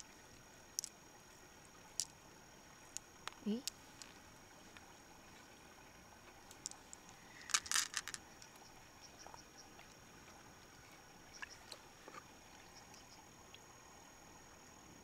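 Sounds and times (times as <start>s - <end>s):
mussel shells clicking and scraping: 0.7s - 0.9s, 1.8s - 2.2s, 2.8s - 4.2s, 6.4s - 8.6s.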